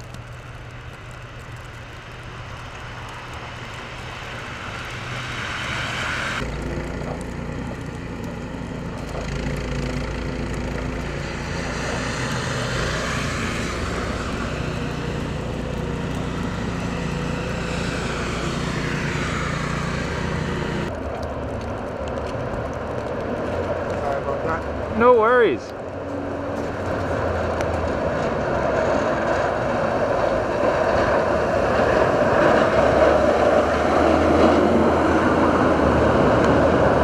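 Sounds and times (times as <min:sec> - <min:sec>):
snowblower engine running: 0:00.0 - 0:20.9.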